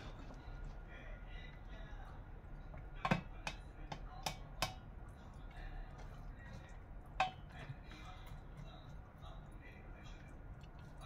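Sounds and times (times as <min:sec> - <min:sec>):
spatula knocking on steel pot: 0:03.0 - 0:04.8, 0:07.2 - 0:07.5.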